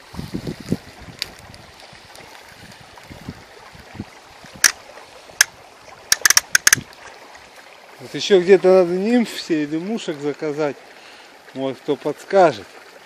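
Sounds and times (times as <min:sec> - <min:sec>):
wind hissing across microphone: 0:00.0 - 0:05.7
sharp clicks: 0:06.1 - 0:06.8.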